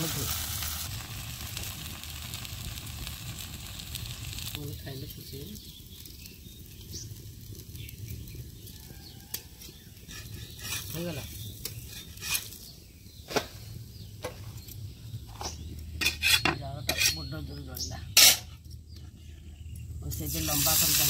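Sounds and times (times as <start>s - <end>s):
pancake sizzling faintly: 0.0s - 12.7s, 19.2s - 21.0s
metal spatula scraping a pan: 9.6s - 12.7s, 15.4s - 17.4s, 18.1s - 18.6s.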